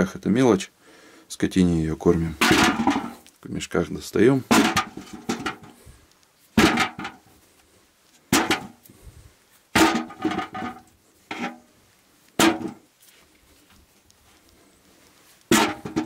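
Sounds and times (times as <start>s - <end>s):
potatoes clanking into metal bucket: 2.2s - 3.2s, 4.4s - 5.8s, 6.6s - 7.3s, 8.3s - 8.8s, 9.8s - 11.7s, 12.4s - 12.8s, 15.5s - 16.0s.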